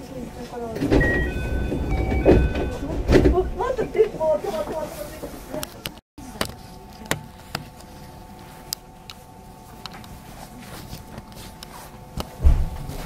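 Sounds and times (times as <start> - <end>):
train low hum: 0.8 - 4.4.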